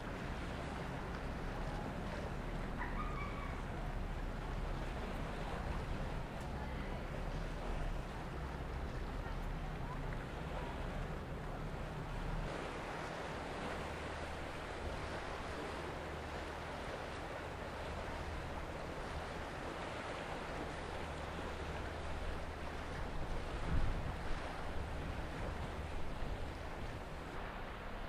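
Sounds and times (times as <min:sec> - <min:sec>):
waves washing: 0:00.0 - 0:28.0
wind buffeting microphone: 0:16.8 - 0:28.0.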